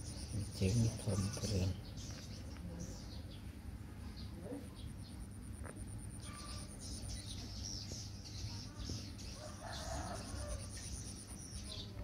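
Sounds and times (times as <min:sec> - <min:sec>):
steady low hum: 0:00.0 - 0:12.0
rooster crowing: 0:09.4 - 0:10.8.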